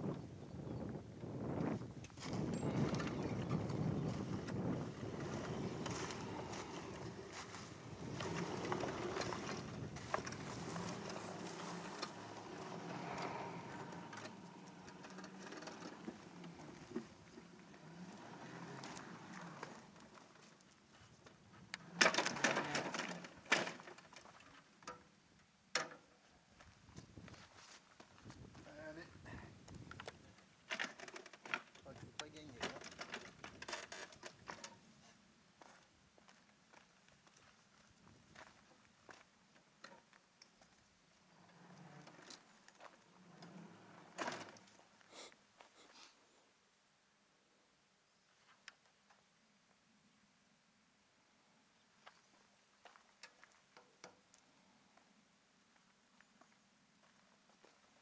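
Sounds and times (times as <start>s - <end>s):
model locomotive faint hum: 0.8s - 24.6s, 40.7s - 46.6s
footsteps on gravel: 3.5s - 14.8s.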